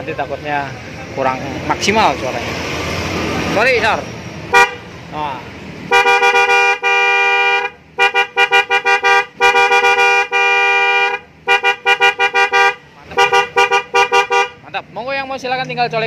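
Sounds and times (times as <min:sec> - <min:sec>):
scooter horn two-tone toots: 0:05.9 - 0:14.6.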